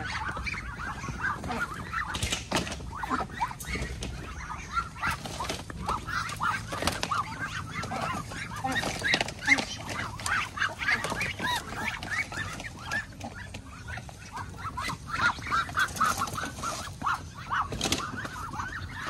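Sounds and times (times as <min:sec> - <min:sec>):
knocks of cage and crates: 0:00.0 - 0:14.1
ducks peeping: 0:00.0 - 0:19.0.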